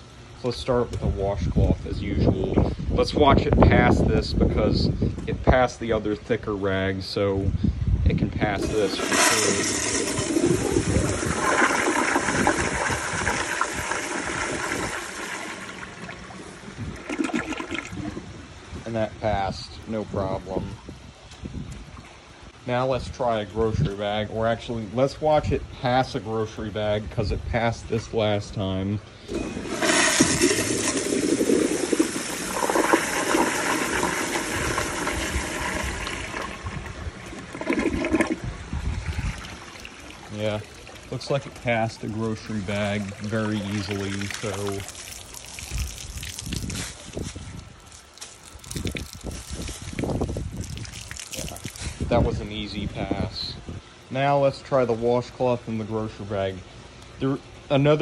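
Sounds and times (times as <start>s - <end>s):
toilet flushing: 8.6s - 18.2s, 29.3s - 45.6s.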